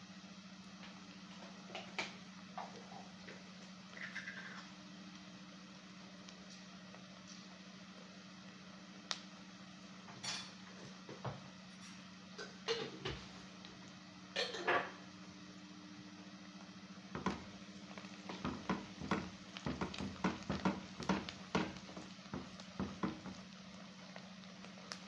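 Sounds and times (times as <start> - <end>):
onions frying in oil: 0.0 - 25.0.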